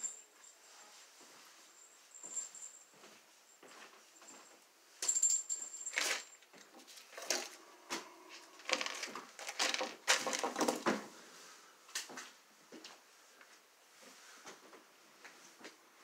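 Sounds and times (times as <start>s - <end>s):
tools clicking and clattering: 5.0s - 7.6s, 8.6s - 11.0s.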